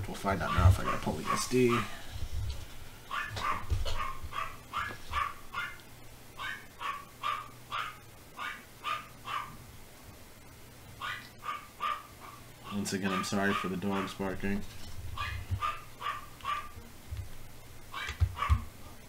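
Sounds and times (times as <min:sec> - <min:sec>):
dogs barking: 0:00.4 - 0:02.0, 0:03.1 - 0:05.8, 0:06.4 - 0:09.6, 0:11.0 - 0:14.2, 0:15.2 - 0:16.8, 0:17.9 - 0:18.7.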